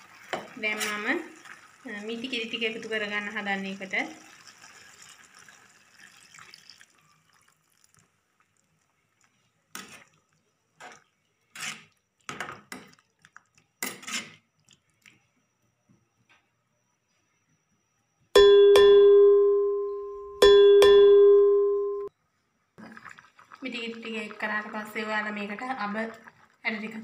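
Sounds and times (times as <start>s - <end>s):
liquid pouring into pot: 0.0s - 3.0s, 3.8s - 11.1s, 22.8s - 26.7s.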